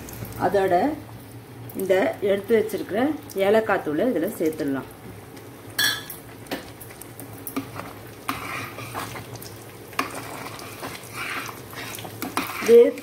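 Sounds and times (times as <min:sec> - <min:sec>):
spoon stirring thick pudding: 0:07.6 - 0:09.4, 0:10.0 - 0:13.0.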